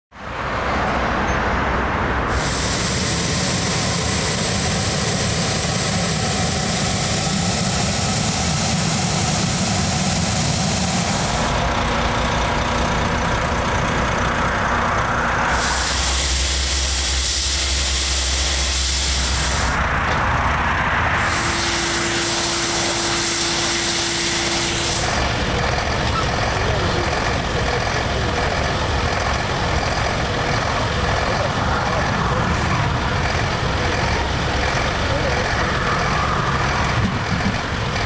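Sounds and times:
heavy vehicle engines rumbling: 0.1s - 38.0s
loud hiss of spraying: 2.3s - 11.5s, 15.5s - 19.8s, 21.2s - 25.4s.

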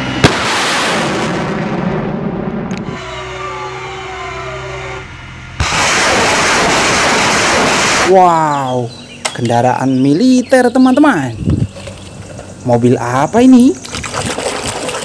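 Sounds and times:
rocket launch crack and roar: 0.0s - 3.8s, 5.6s - 8.3s
falling whine: 0.0s - 10.4s.

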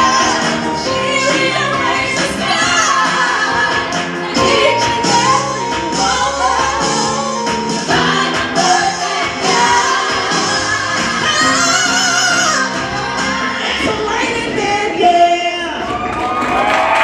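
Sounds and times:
women singing into microphones: 0.0s - 15.8s
pop music: 0.0s - 16.0s.

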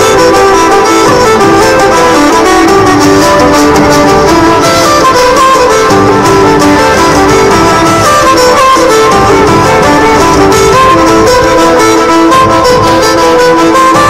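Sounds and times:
fast fiddle dance tune: 0.0s - 14.0s.

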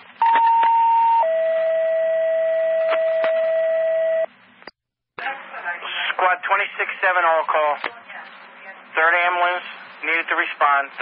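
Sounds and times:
radio hiss: 9.0s - 11.0s.

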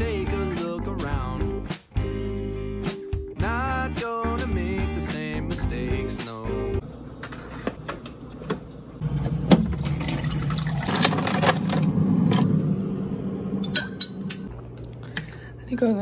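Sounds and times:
coffee maker pump hum: 6.8s - 13.8s
coffee streaming into a mug: 9.8s - 11.8s.

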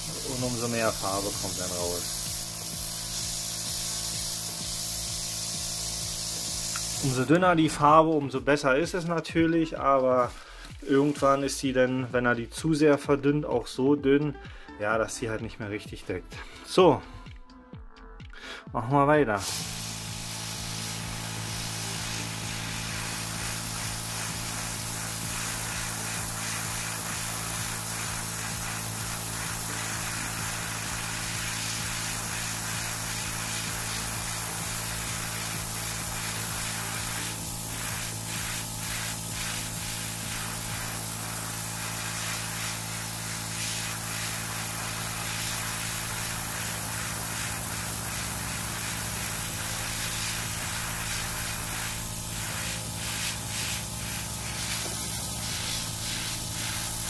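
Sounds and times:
airbrush hissing: 0.0s - 7.8s, 10.2s - 11.5s, 19.4s - 57.0s
compressor humming: 19.4s - 57.0s.

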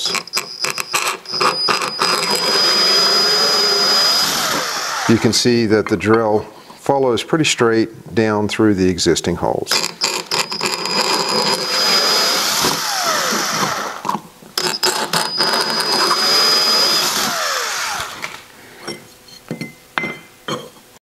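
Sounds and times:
cordless drill drilling metal: 0.0s - 5.4s, 9.7s - 18.4s.

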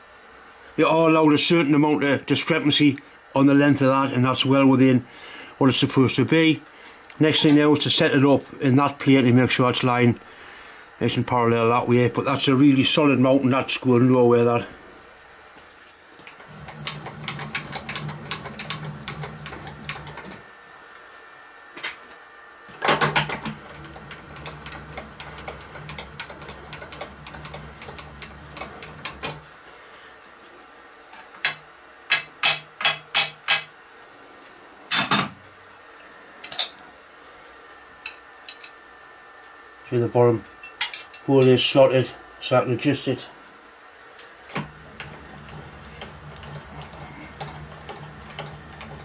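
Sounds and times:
machine motor hum: 16.2s - 20.6s, 22.6s - 29.6s, 44.4s - 49.0s.

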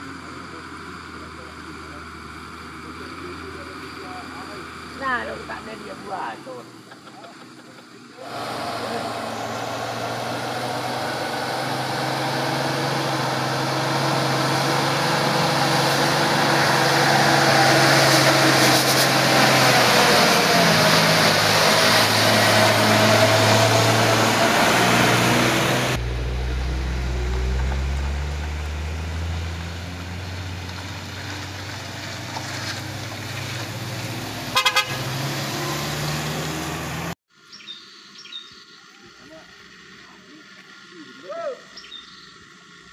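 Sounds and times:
diesel truck engine labouring: 0.0s - 37.2s
passing car engine hum: 8.2s - 37.2s
horn toots: 34.4s - 35.8s.

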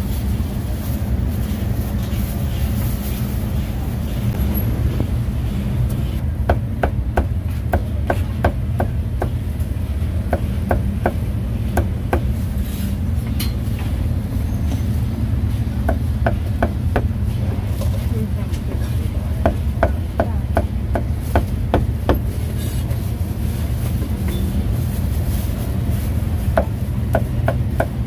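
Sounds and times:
street traffic rumble: 0.0s - 28.0s.

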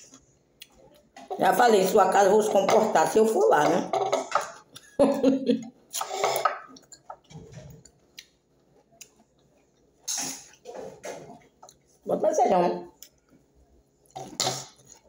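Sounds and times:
person's voice: 1.3s - 3.9s, 12.1s - 12.9s.

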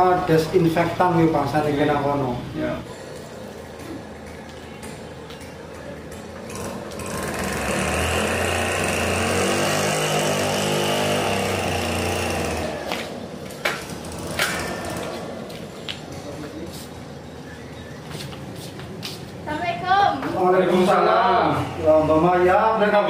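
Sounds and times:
small engine running: 6.5s - 13.2s, 13.9s - 15.6s.

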